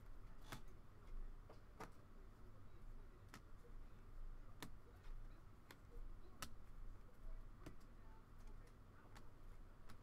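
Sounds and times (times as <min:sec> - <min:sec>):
trading cards clicking and tapping: 0:00.3 - 0:02.0, 0:03.2 - 0:03.7, 0:04.5 - 0:06.8, 0:07.6 - 0:10.0.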